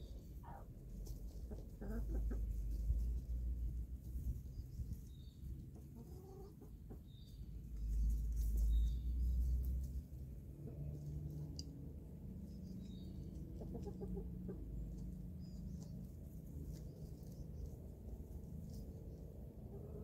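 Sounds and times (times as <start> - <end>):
chickens clucking: 0.0 - 3.3, 5.0 - 8.7, 12.4 - 17.9.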